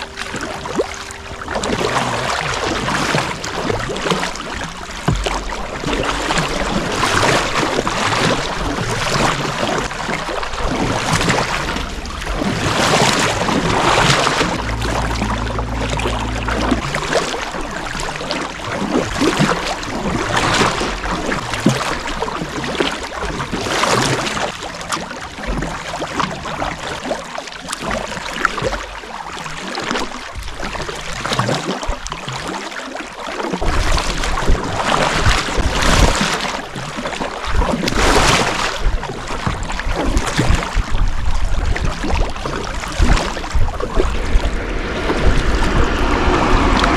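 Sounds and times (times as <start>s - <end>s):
wind rumbling on microphone: 0.0s - 27.2s, 37.5s - 46.9s
water rushing past hull: 0.0s - 46.9s.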